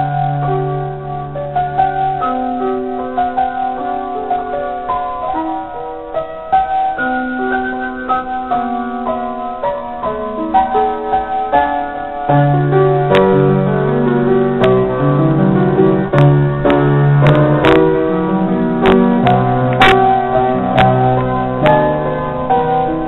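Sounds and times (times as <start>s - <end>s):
slow piano music: 0.0s - 23.0s.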